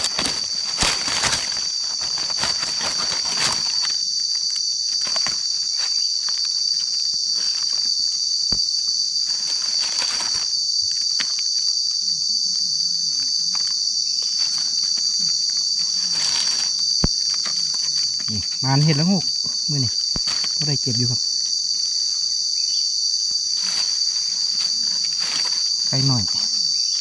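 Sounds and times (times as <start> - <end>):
high-pitched insect chorus: 0.0 - 27.0.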